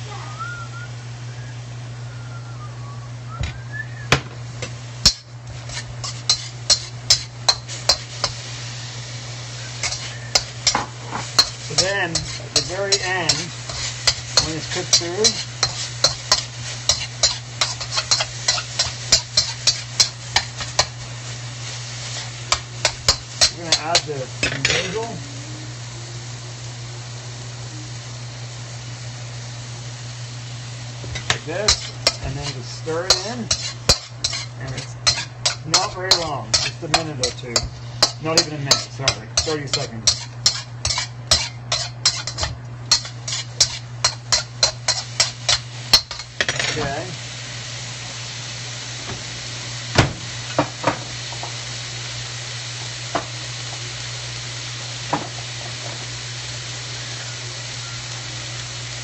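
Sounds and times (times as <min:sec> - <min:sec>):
low hum: 0:00.2 - 0:04.1
utensil scraping a metal wok: 0:04.6 - 0:08.6, 0:09.7 - 0:25.2, 0:31.2 - 0:47.1.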